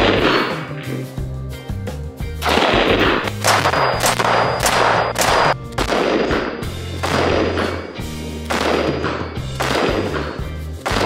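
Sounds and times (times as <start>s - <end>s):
background music with bass line: 0.0s - 11.0s
rifle shots with echo: 2.4s - 11.0s.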